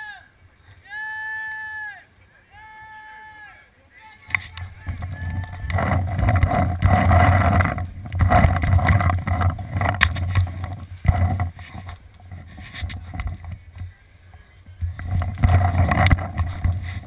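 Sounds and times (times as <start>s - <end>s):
sharp clicks and knocks: 4.3s - 13.9s, 14.8s - 17.0s
wind rumble on camera: 4.3s - 17.0s.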